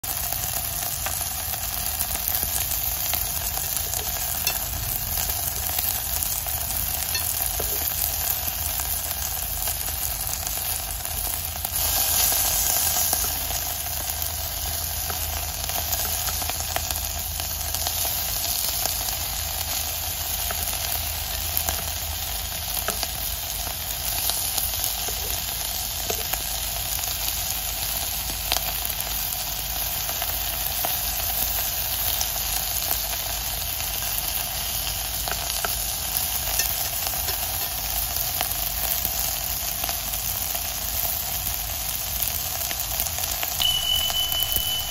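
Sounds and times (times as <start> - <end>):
fish sizzling in hot oil: 0.0 - 44.9.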